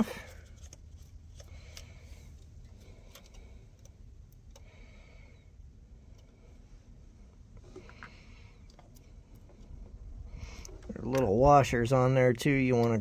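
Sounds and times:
faint metallic ticks and clicks: 12.3 - 13.0.

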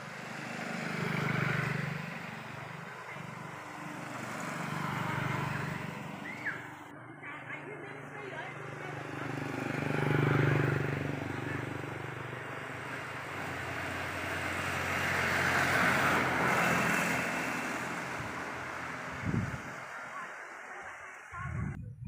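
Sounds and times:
hissy passing traffic: 0.0 - 21.4
passing vehicle engine hum: 0.0 - 21.7.

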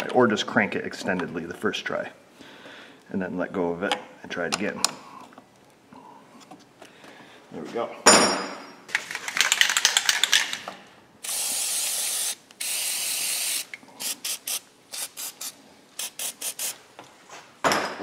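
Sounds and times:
aerosol can rattling: 8.9 - 10.6
aerosol spray hissing: 11.2 - 16.8.

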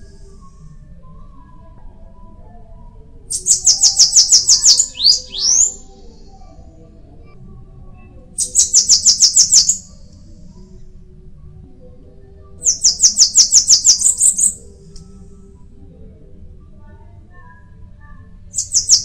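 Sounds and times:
bird singing rapid trills: 3.3 - 6.4, 8.4 - 10.1, 12.6 - 14.7, 18.6 - 19.0.

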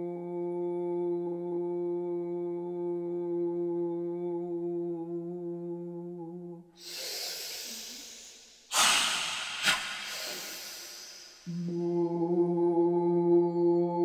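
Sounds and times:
long hissing breath: 6.8 - 11.5
loud forceful breath: 6.8 - 11.5
woman holding low tone: 9.4 - 14.0.

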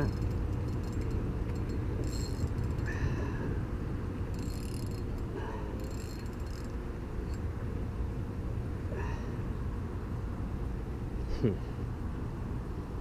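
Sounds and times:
spinning reel ticking: 0.0 - 2.9, 4.3 - 7.4
steady low rumble: 0.0 - 13.0.

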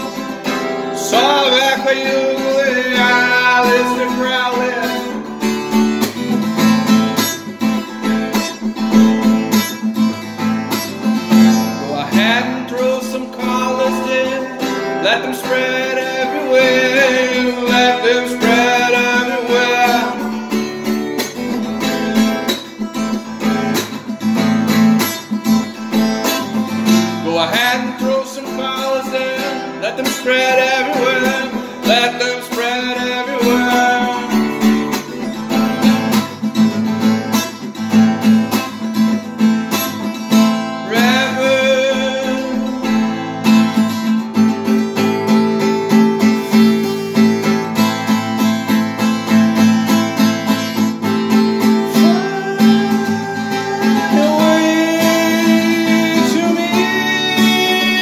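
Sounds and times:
man singing: 0.0 - 5.9, 11.0 - 24.0, 26.7 - 36.2, 40.1 - 48.1, 50.5 - 58.0
acoustic guitar strumming: 0.0 - 58.0.

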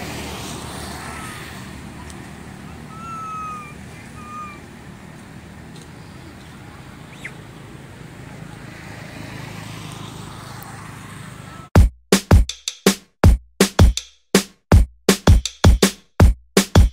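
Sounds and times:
distant traffic rumble: 0.0 - 11.8
whistled bird notes: 2.7 - 4.7, 6.0 - 7.4.

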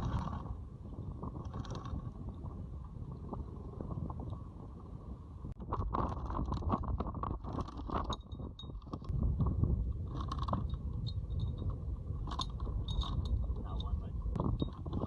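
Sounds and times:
low rumble: 0.0 - 7.6, 8.4 - 15.0
anchor chain clanking: 7.4 - 9.1, 10.1 - 15.0.

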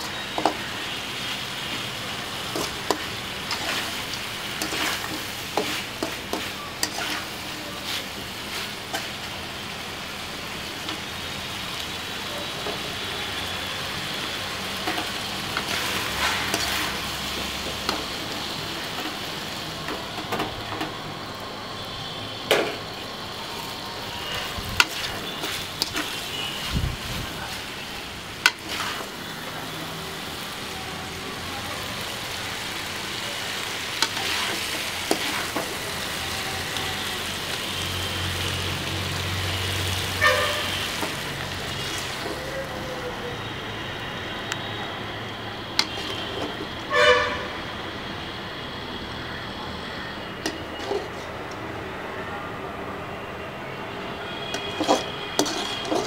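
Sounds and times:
chicken sizzling in a pan: 0.0 - 44.4, 54.3 - 56.0
spatula scraping a pan: 2.5 - 9.2, 28.4 - 29.1, 50.5 - 51.4, 54.4 - 56.0.

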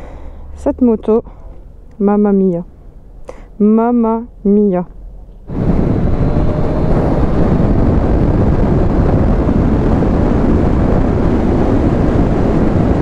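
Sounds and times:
wind rushing on microphone: 5.4 - 13.0.

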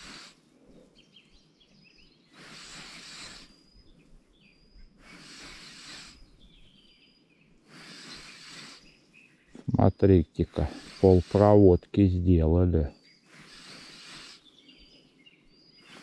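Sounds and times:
birds chirping faintly: 0.0 - 16.0.

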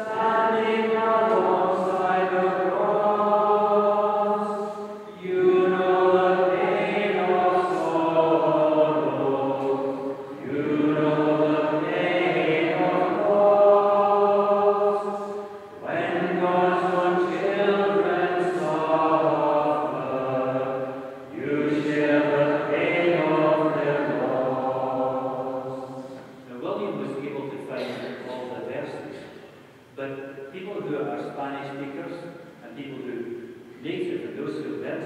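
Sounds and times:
congregation singing a hymn: 0.0 - 29.4.

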